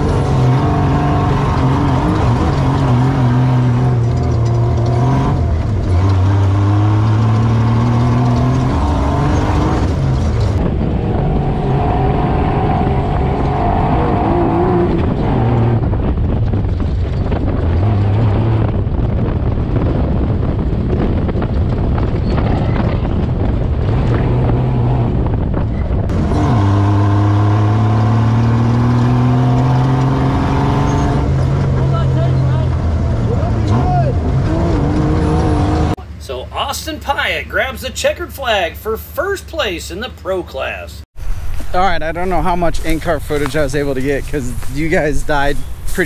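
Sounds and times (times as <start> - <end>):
race engine revving: 0.0 - 16.2, 26.1 - 36.0.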